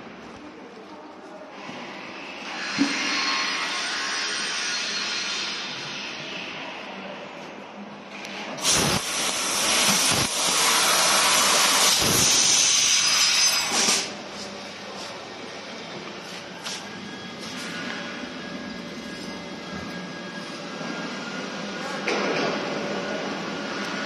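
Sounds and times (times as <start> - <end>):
compressed air hissing loudly: 8.6 - 14.1.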